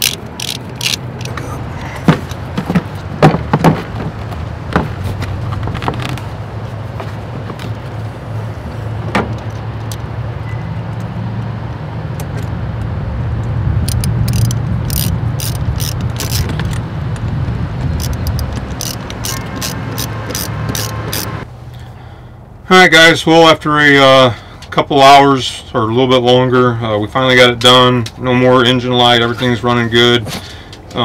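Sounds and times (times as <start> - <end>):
ratchet clicking: 0.0 - 1.4, 13.8 - 16.8, 18.0 - 21.4
hand tools clicking: 0.0 - 2.4, 13.9 - 16.8, 18.0 - 21.4
low engine rumble: 0.0 - 31.0.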